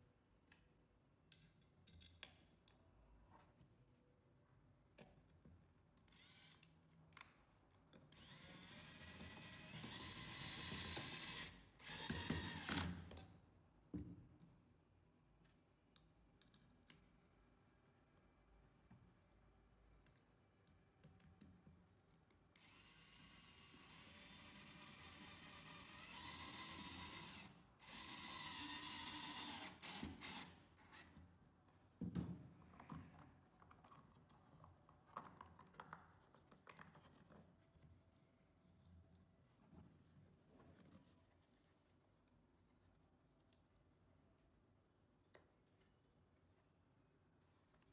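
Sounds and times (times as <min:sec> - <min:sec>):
cordless drill driving screw: 0:06.1 - 0:06.7, 0:08.1 - 0:13.1, 0:22.6 - 0:31.2.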